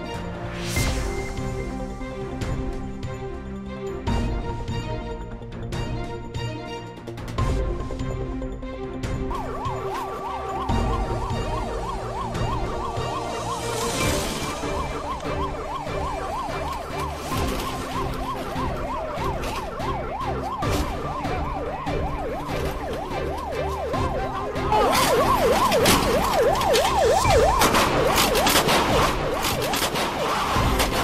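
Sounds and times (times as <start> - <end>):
police siren yelping: 9.2 - 31.0.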